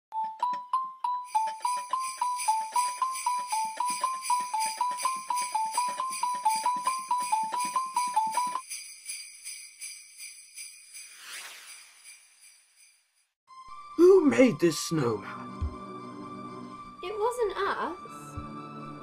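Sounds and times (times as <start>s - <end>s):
sleigh bells jingling: 1.3s - 13.3s.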